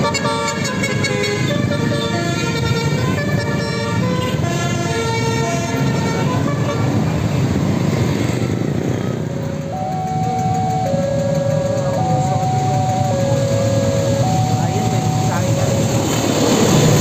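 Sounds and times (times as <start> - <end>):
musical air horn playing a tune: 0.0 - 7.1
bus engine: 0.0 - 17.0
road traffic: 0.0 - 17.0
two-pitch alternating tone: 9.7 - 16.1.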